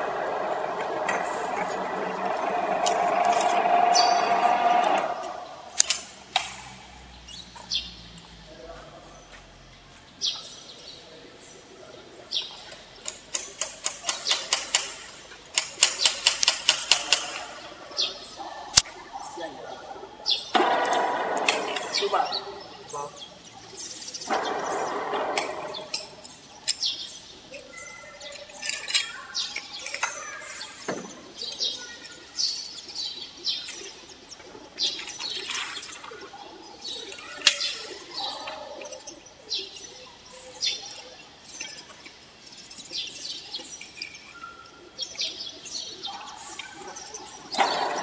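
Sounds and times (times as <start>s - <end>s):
birds chirping: 0.0s - 48.0s
steel wire clinking and rattling: 28.2s - 30.3s.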